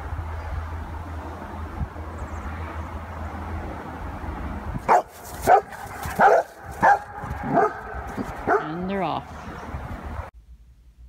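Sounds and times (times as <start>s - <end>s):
dog barking: 4.9s - 8.8s.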